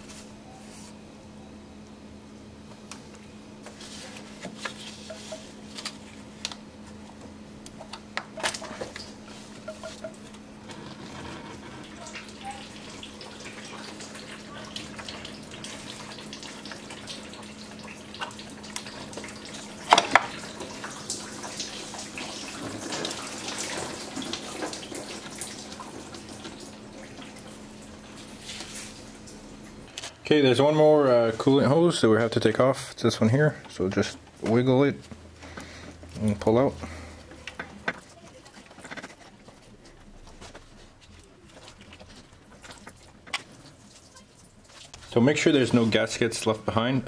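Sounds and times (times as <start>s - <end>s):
oil draining and dripping: 8.8s - 30.0s, 33.6s - 46.8s.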